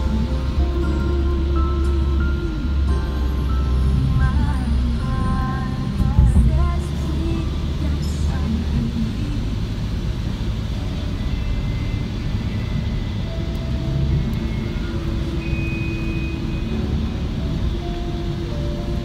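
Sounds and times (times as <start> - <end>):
road and engine rumble in car: 0.0 - 19.0
faint held tones: 11.0 - 19.0.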